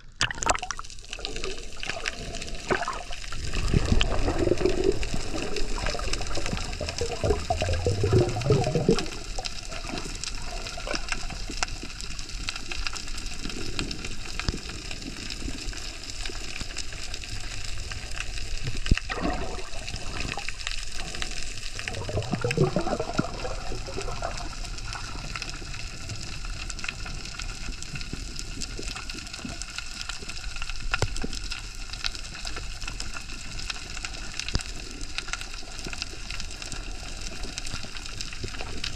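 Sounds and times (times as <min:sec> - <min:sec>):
rushing water swooshes: 0:00.6 - 0:11.0, 0:19.1 - 0:25.3
crackling ticks: 0:00.8 - 0:19.2, 0:19.9 - 0:38.9
underwater hiss of water: 0:01.1 - 0:38.9.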